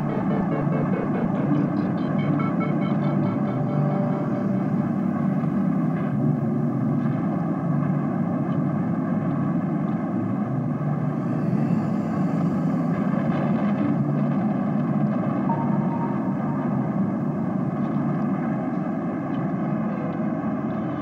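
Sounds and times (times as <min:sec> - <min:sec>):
faint sustained tones: 0:00.0 - 0:06.8, 0:11.0 - 0:14.2, 0:15.4 - 0:18.1
loud low rumble: 0:00.0 - 0:20.8.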